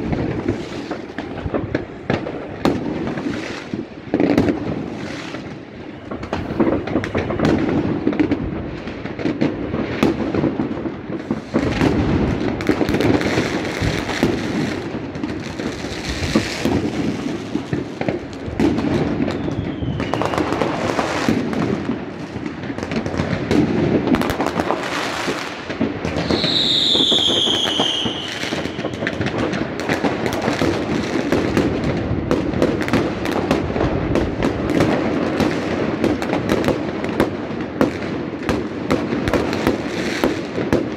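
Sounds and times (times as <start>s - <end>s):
fireworks and firecrackers crackling: 0.0s - 40.9s
whistling firework falling pitch: 19.2s - 20.8s, 26.2s - 29.2s.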